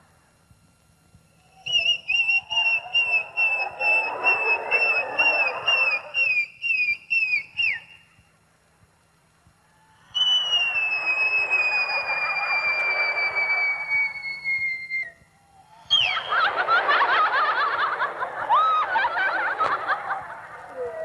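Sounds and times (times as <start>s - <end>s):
whistle tooting in short pulses: 1.5s - 8.1s, 10.1s - 16.4s
audience noise: 1.6s - 7.8s, 10.1s - 15.1s, 15.9s - 21.0s.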